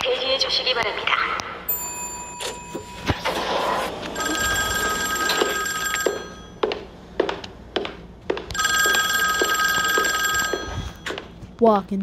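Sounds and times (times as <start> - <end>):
old telephone ringing: 1.7 - 3.3, 4.2 - 6.6, 8.6 - 11.2.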